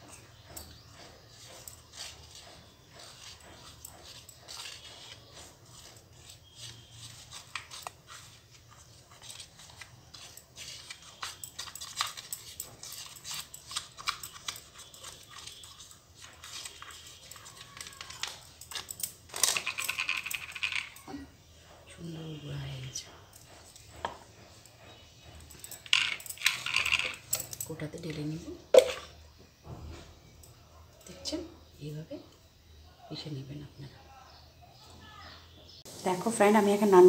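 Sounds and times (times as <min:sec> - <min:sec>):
kitchen things clattering: 0:00.0 - 0:21.8, 0:23.3 - 0:30.4.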